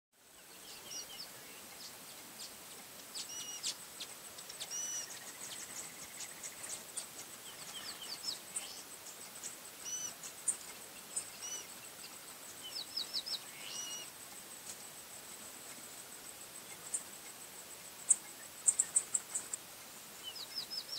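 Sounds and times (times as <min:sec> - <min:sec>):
high-pitched insect whine: 0:00.6 - 0:20.9
birds chirping and whistling: 0:03.2 - 0:03.8, 0:04.4 - 0:06.8, 0:07.4 - 0:08.9, 0:09.8 - 0:14.1.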